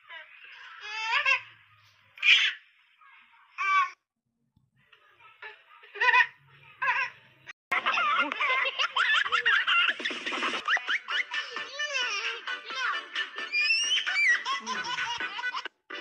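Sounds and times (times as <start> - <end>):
baby laughing and giggling: 7.8 - 15.8.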